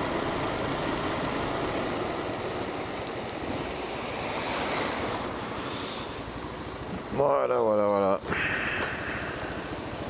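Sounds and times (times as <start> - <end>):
tyre hiss on wet road: 3.2 - 6.4, 8.3 - 10.0.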